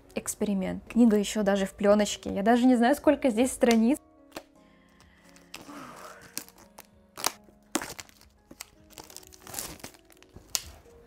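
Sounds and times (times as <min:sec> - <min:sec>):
soft background music: 0:00.0 - 0:11.0
plastic wrap tearing and crinkling: 0:05.2 - 0:11.0.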